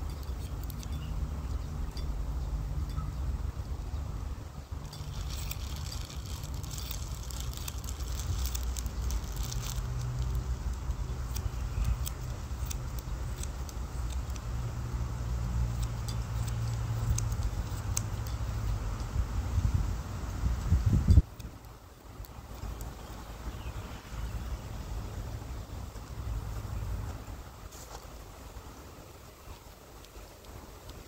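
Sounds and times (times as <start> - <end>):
steady low rumble: 0.0 - 29.3
scissors snipping hair: 4.9 - 14.6, 15.6 - 19.1.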